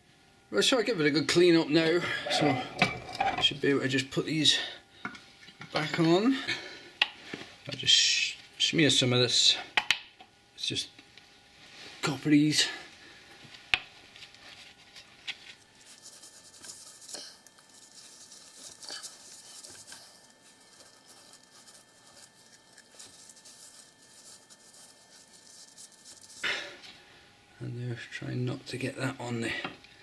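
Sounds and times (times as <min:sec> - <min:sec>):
gloved hand scratching on metal: 0:14.7 - 0:26.7.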